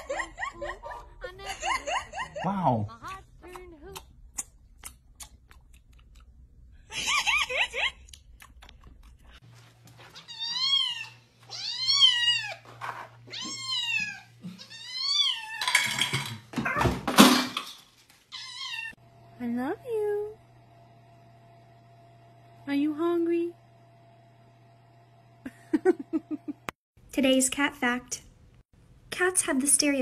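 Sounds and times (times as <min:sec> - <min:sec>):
kitten meowing: 0:18.3 - 0:18.9.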